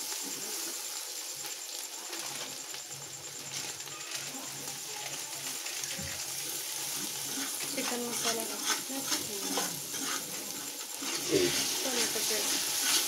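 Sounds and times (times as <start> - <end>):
faint sizzle: 0.0 - 13.0
spoon scraping a pot: 5.7 - 13.0.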